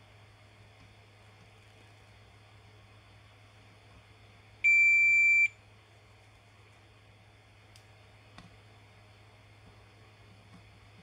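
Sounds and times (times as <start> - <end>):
multimeter continuity beep: 4.6 - 5.6.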